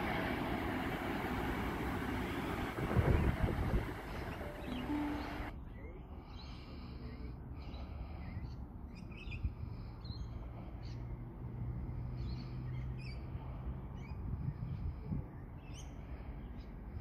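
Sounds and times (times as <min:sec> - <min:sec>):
low steady rumble: 0:00.0 - 0:07.0
birds chirping: 0:00.6 - 0:11.0.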